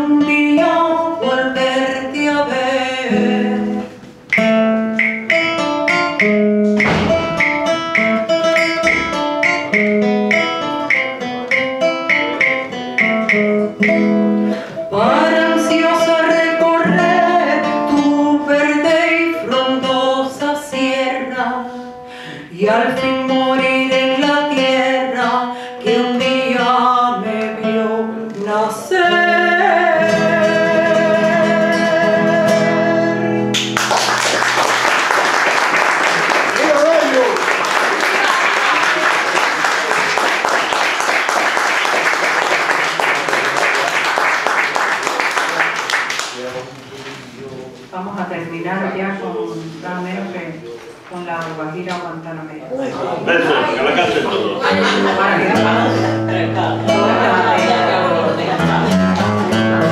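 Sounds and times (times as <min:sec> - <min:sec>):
woman singing: 0:00.0 - 0:04.0, 0:14.9 - 0:33.5
classical guitar plucking: 0:00.0 - 0:34.8, 0:50.5 - 0:59.9.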